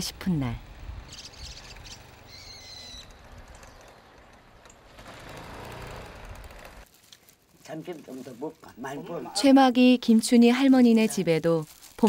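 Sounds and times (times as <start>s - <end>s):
birds chirping: 0.0s - 5.0s
faint outdoor background noise: 0.0s - 12.0s.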